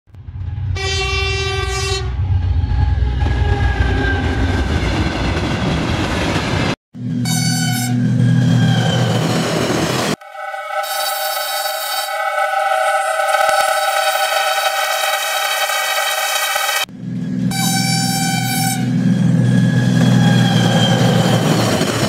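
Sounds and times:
train rumbling on rails: 0.1 - 22.0
steam train whistle: 0.8 - 2.1, 7.2 - 9.1, 10.2 - 16.9, 17.5 - 19.0.

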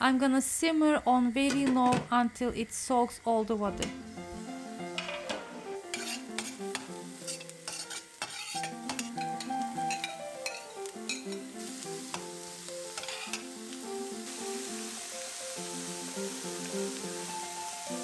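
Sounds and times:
onion sizzling in oil: 2.8 - 18.0
light background music: 3.4 - 18.0
metal spoon scraping a pan: 5.0 - 11.4, 13.0 - 13.4.

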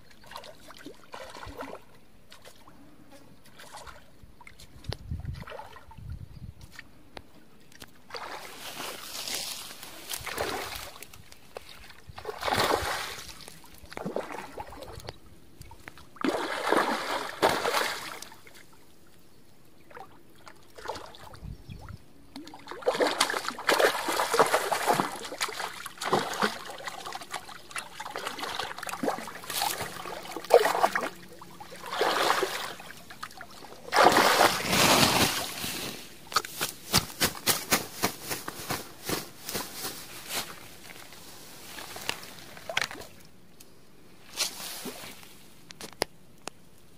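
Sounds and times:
fish splashing in water: 12.2 - 15.0, 16.2 - 18.4, 22.3 - 35.5.

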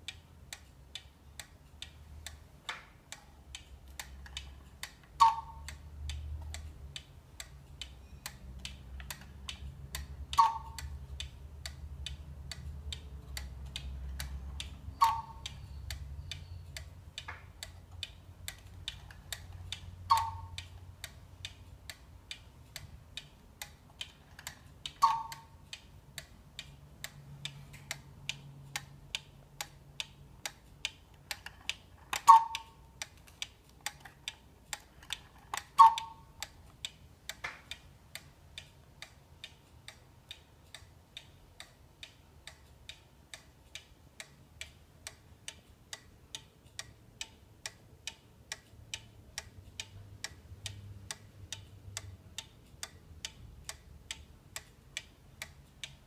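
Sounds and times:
clock ticking: 0.0 - 56.0
cuckoo clock call: 4.0 - 5.8, 10.0 - 11.0, 14.0 - 17.3, 20.0 - 20.7, 24.2 - 25.6, 31.3 - 32.9, 34.9 - 36.5.

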